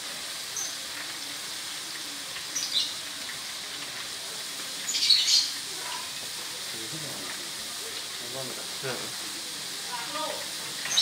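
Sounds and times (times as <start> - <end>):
greens sizzling in oil: 0.0 - 11.0
oil spitting and crackling: 0.0 - 11.0.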